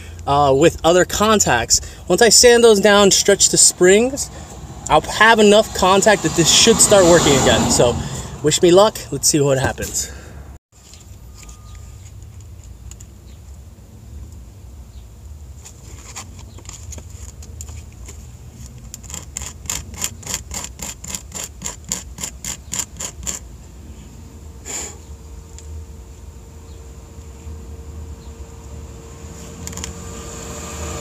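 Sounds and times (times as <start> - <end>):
metal rubbing on sandpaper: 19.0 - 23.4.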